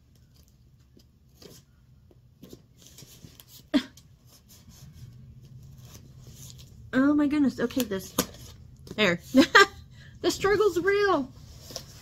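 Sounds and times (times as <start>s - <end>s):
package rustling and scraping: 2.4s - 6.9s, 11.4s - 12.0s.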